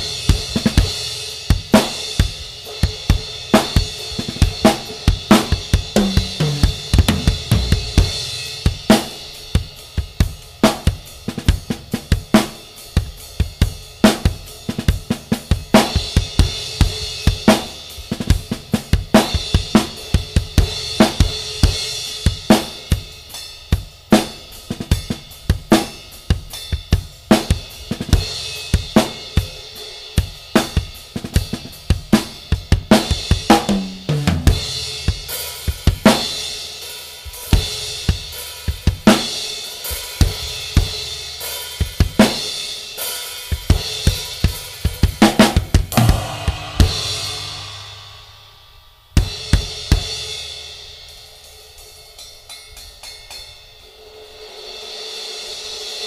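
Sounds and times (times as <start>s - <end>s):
drum kit groove: 0.0s - 56.0s
drum fill falling in pitch: 5.3s - 8.8s, 33.6s - 34.8s, 45.3s - 48.6s
crash cymbal ringing: 45.9s - 50.4s.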